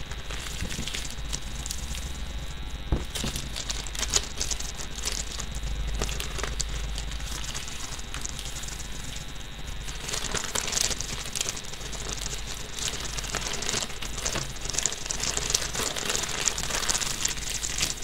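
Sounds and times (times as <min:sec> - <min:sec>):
newspaper rustling and crinkling: 0:00.0 - 0:18.0.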